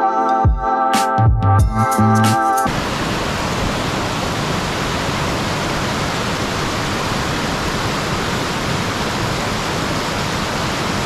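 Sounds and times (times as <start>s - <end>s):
waterfall rushing: 2.7s - 11.0s.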